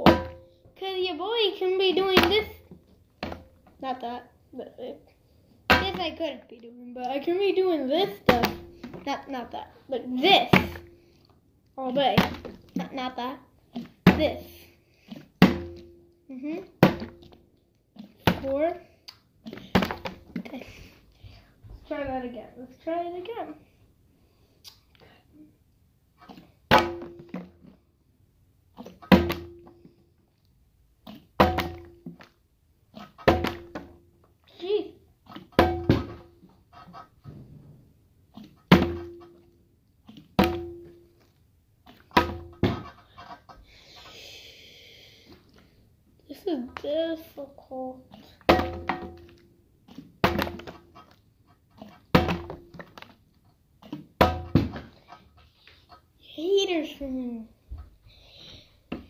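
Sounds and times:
plastic bottle landing thunk: 0:15.4 - 0:15.9, 0:19.6 - 0:20.4, 0:26.7 - 0:27.5, 0:29.1 - 0:29.6, 0:31.4 - 0:31.9, 0:33.3 - 0:33.9, 0:35.6 - 0:36.3, 0:38.7 - 0:39.1, 0:40.4 - 0:40.8, 0:42.2 - 0:42.8, 0:48.5 - 0:49.3, 0:50.2 - 0:50.8, 0:52.1 - 0:53.0, 0:53.9 - 0:54.9.

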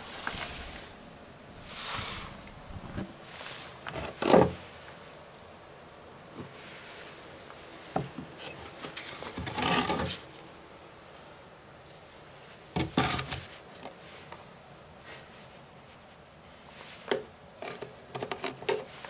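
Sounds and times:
shell scraping on wooden shelf: 0:08.0 - 0:10.3.

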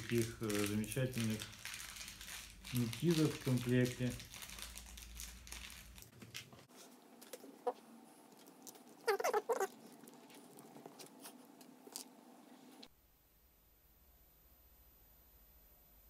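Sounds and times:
plastic squeaks: 0:09.0 - 0:09.8.

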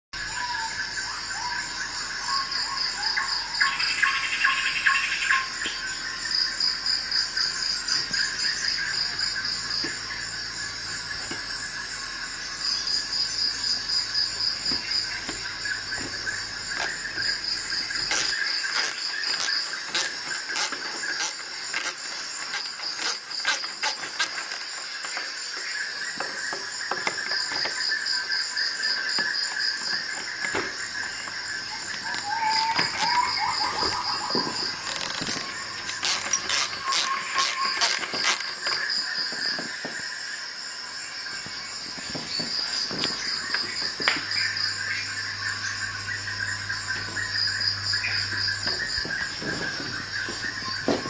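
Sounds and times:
crickets chirping: 0:00.2 - 0:51.0
sharp clicks: 0:17.8 - 0:25.2.

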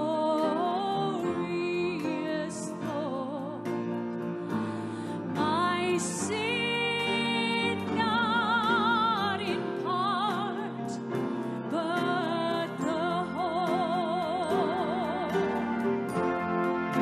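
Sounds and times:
woman singing with vibrato: 0:00.0 - 0:03.8, 0:05.3 - 0:15.8
brass band accompaniment: 0:15.3 - 0:17.0.

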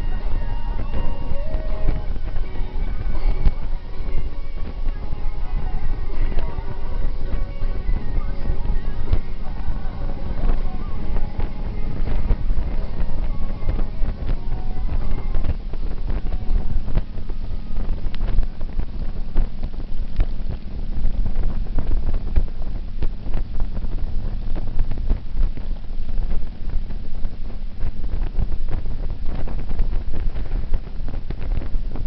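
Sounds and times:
motorcycle engine rumble: 0:00.0 - 0:32.0
wind buffeting microphone: 0:00.0 - 0:32.0.

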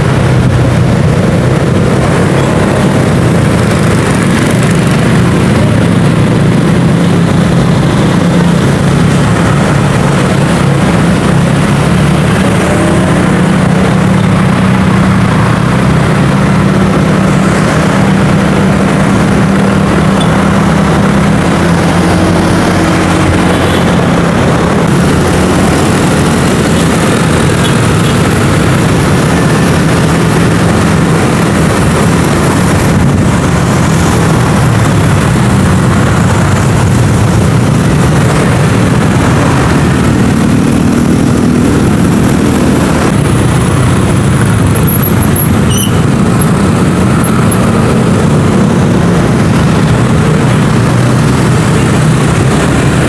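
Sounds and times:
road and wind noise: 0:00.0 - 0:53.0.

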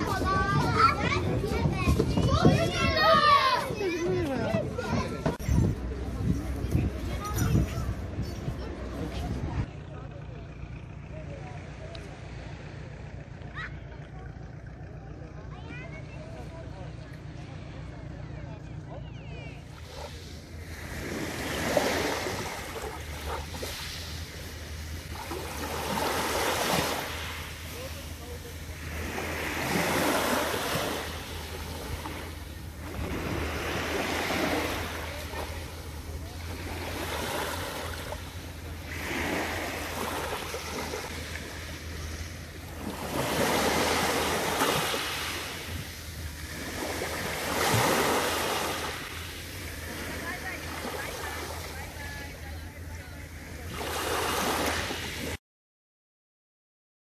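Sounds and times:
waves washing onto pebbles: 0:19.7 - 0:52.3, 0:53.7 - 0:55.4.

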